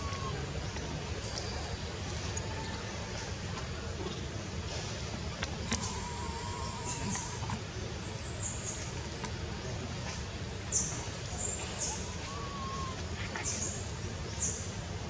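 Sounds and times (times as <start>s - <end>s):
small birds chirping: 5.6s - 14.7s.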